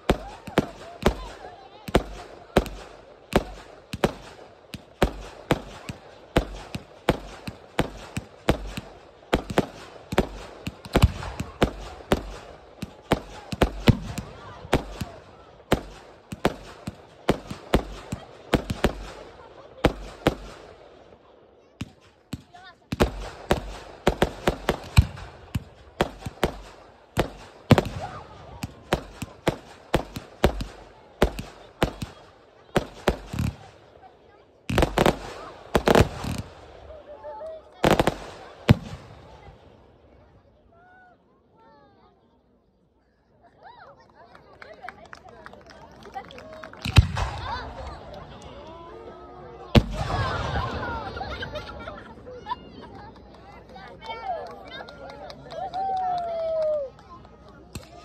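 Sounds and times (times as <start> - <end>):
fireworks banging: 0.0 - 21.2, 21.8 - 37.0, 37.8 - 39.6, 46.8 - 48.5, 49.8 - 51.8.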